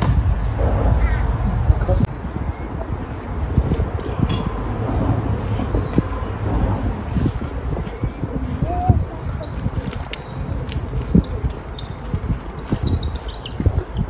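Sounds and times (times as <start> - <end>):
low rumble: 0.0 - 8.8
small birds twittering: 2.1 - 14.0.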